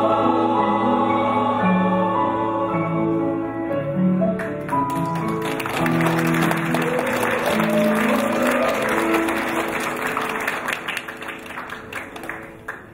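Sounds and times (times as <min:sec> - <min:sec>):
choir holding notes: 0:00.0 - 0:04.2
audience applause: 0:04.6 - 0:12.9.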